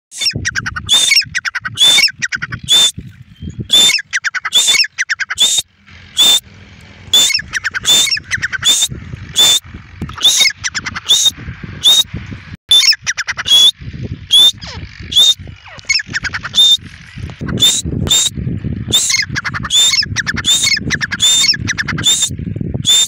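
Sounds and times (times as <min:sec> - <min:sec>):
francolin calling: 0:00.1 - 0:06.4, 0:07.1 - 0:12.1, 0:18.9 - 0:23.0.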